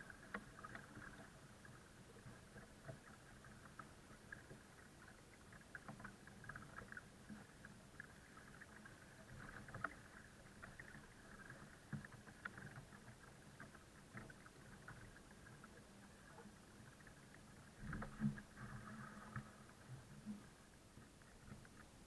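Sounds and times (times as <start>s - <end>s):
water lapping against kayak: 0.0s - 22.0s.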